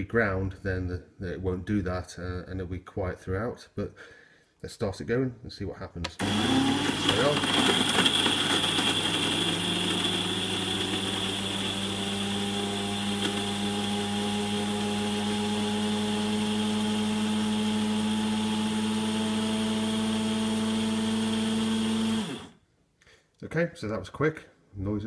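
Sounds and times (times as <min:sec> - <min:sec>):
coffee grinder grinding beans: 0:06.2 - 0:22.6.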